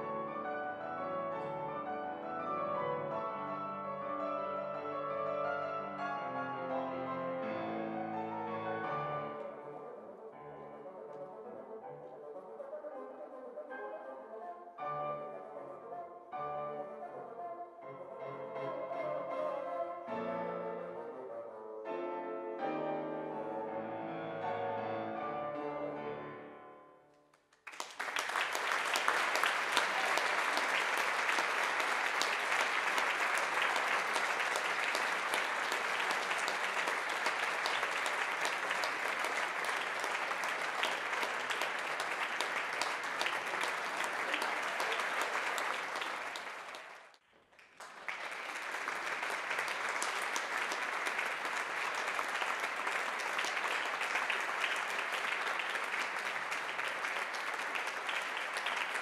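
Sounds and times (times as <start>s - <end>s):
audience applauding: 27.5s - 59.0s.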